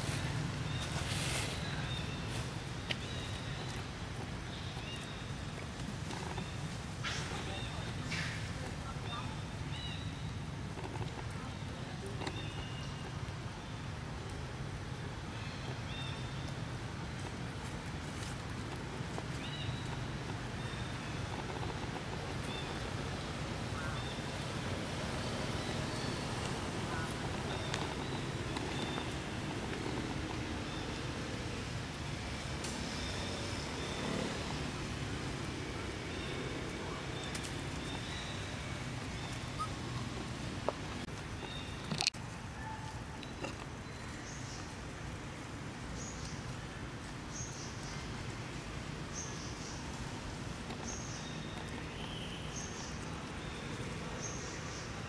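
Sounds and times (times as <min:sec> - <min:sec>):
low outdoor rumble: 0:00.0 - 0:42.6
steady background hiss: 0:00.0 - 0:55.0.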